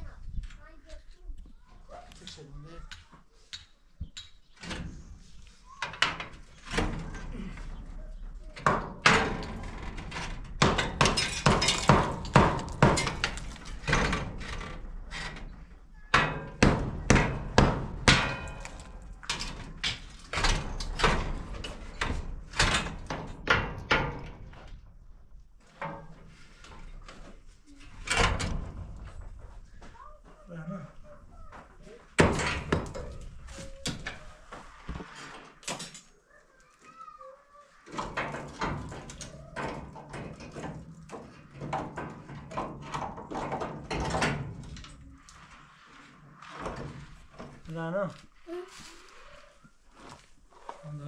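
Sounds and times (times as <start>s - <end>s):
hammer knocking: 10.6s - 13.3s, 16.2s - 18.7s.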